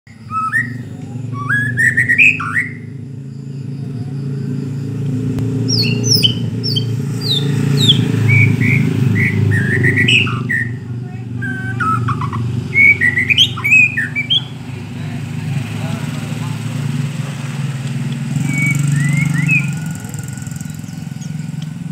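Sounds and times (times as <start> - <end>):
bird singing whistled phrases: 0.1 - 3.0, 5.6 - 14.7, 18.4 - 21.8.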